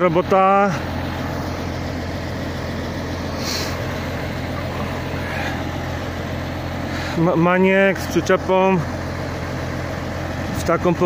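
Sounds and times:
diesel engine idling: 0.0s - 11.0s.

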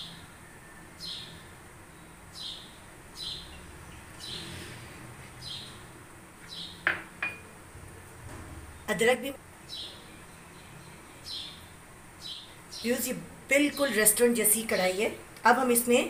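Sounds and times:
bird chirping: 0.0s - 4.7s, 5.4s - 5.9s, 6.5s - 7.4s, 9.6s - 13.1s.

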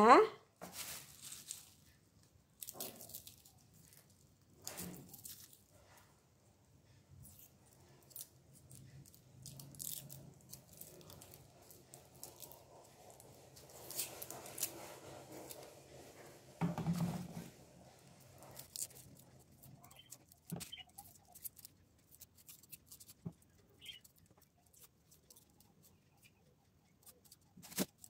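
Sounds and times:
skins rustling on a plastic bag: 0.6s - 1.9s
knife scraping shallots: 7.2s - 28.0s.

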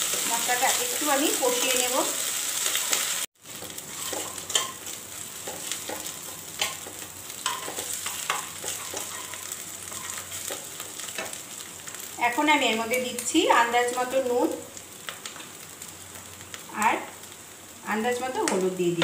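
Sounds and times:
paste sizzling in oil: 0.0s - 17.8s
spatula scraping a pan: 3.7s - 4.8s, 5.4s - 11.4s.

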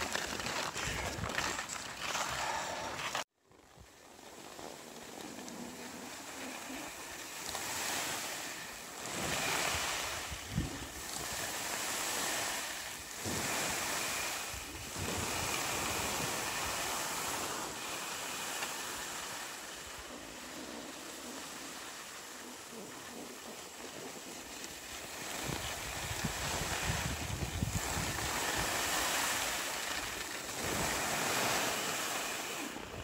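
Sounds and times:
skis sliding over snow: 0.0s - 33.0s
wind on microphone: 9.0s - 12.2s, 25.0s - 29.5s.

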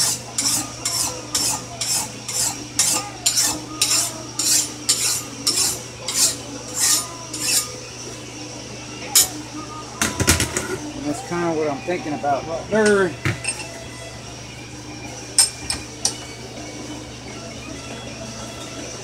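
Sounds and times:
hand file rasping on steel: 0.0s - 7.7s.

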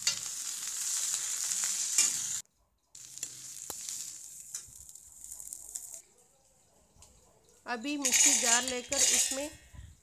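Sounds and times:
vegetables sizzling in hot oil: 0.0s - 2.4s, 3.0s - 6.0s, 8.0s - 9.6s
steel spoon stirring and scraping: 7.0s - 9.7s.

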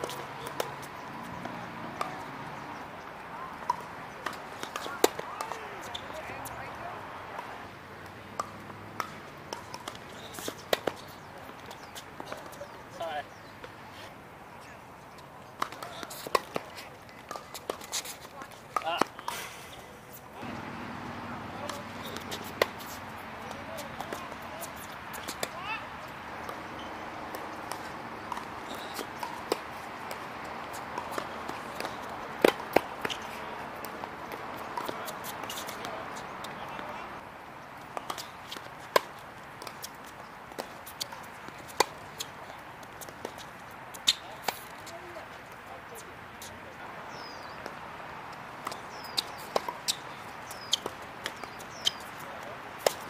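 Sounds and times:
tennis ball taps: 0.0s - 2.8s, 3.6s - 6.6s, 7.4s - 12.8s, 15.1s - 19.4s, 20.4s - 25.7s, 26.4s - 37.0s, 37.9s - 44.9s, 47.2s - 53.0s
tennis ball knocks: 8.3s - 11.0s, 20.4s - 25.7s, 26.4s - 37.0s
racket hitting ball sharp pops: 20.4s - 24.6s.

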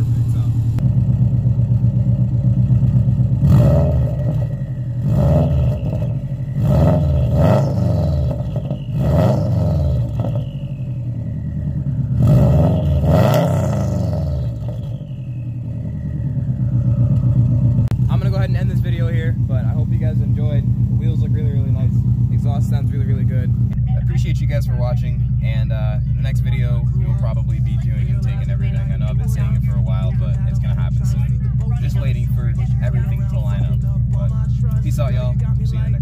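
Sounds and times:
car engine idling and revving: 0.0s - 36.0s.

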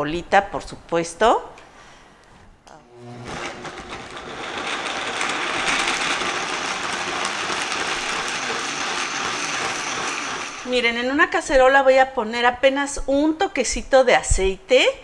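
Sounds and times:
blender running: 2.9s - 11.2s.

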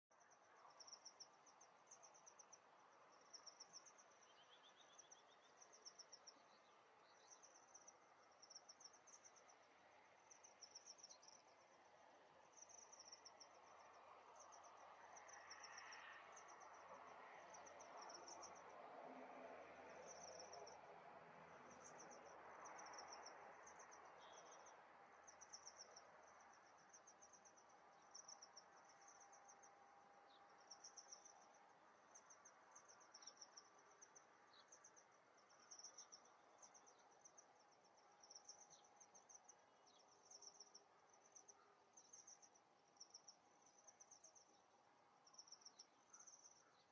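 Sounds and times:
faint insect chirping: 0.1s - 46.9s
soft outdoor hiss: 0.1s - 46.9s.

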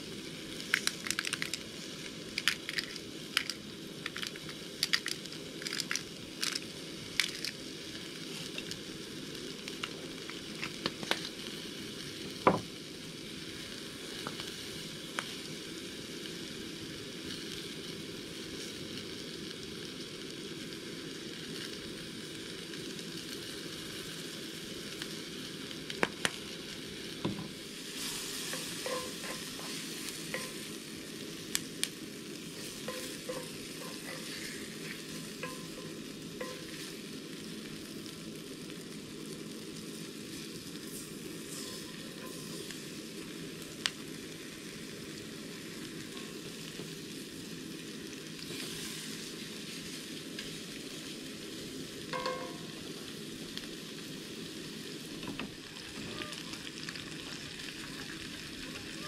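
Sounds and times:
food sizzling in a skillet: 0.0s - 59.0s
oil pops and crackles: 0.6s - 7.6s, 9.6s - 11.4s, 25.8s - 26.5s, 55.2s - 58.5s
food stirred in a pan: 27.3s - 37.8s, 40.2s - 43.2s, 48.4s - 51.2s.

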